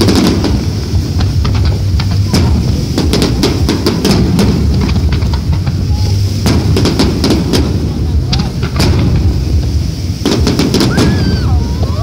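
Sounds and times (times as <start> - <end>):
continuous low rumble: 0.0 - 12.0
fireworks bursting and crackling: 0.0 - 12.0.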